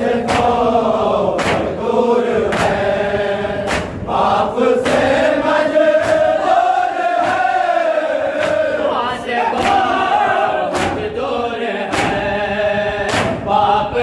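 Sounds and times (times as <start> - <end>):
men chanting in long notes: 0.0 - 14.0
chest-beating slaps: 0.2 - 0.7, 1.3 - 1.8, 2.5 - 2.9, 3.6 - 4.2, 4.8 - 5.3, 6.0 - 7.7, 8.4 - 8.7, 9.5 - 10.0, 10.7 - 11.1, 11.9 - 12.3, 13.0 - 13.5.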